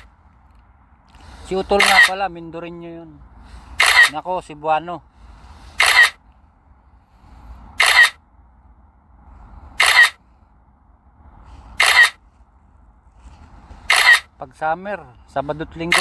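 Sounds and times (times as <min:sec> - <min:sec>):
camera shutter click: 0:01.8 - 0:02.1, 0:03.8 - 0:04.2, 0:05.8 - 0:06.2, 0:07.8 - 0:08.2, 0:09.8 - 0:10.2, 0:11.8 - 0:12.2, 0:13.9 - 0:14.3.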